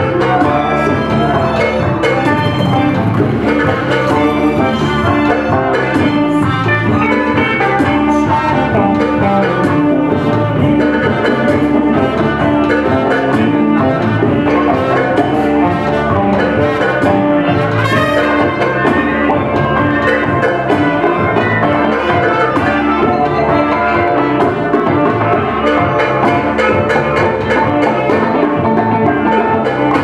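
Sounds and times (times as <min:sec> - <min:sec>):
drum kit: 0:00.0 - 0:30.0
electric guitar: 0:00.0 - 0:30.0
saxophone: 0:00.0 - 0:30.0
trumpet: 0:00.0 - 0:30.0.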